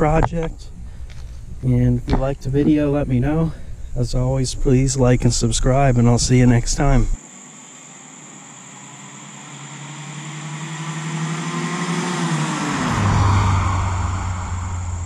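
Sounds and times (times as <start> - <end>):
car driving past: 8.3 - 15.0.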